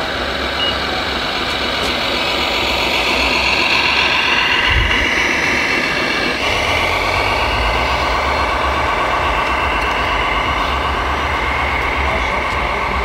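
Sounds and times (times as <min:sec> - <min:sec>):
toy truck motor whining: 0:00.0 - 0:13.0.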